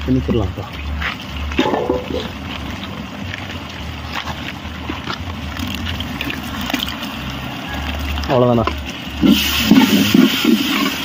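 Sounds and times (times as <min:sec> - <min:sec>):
faint clicks and scrapes: 0:00.8 - 0:09.0.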